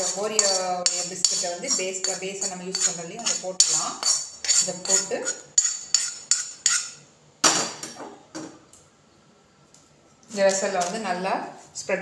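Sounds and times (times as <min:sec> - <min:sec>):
metal spoon clinking on metal pan: 0:00.0 - 0:04.2.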